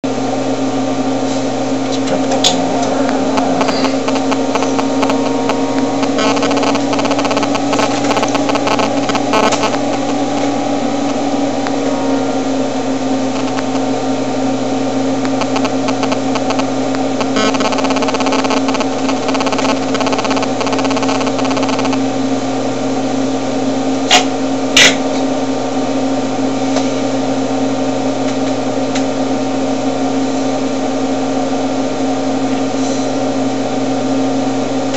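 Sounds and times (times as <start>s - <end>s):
loud machine hum: 0.0s - 34.9s
sharp clicks: 6.0s - 10.5s, 13.4s - 13.8s, 15.2s - 16.6s.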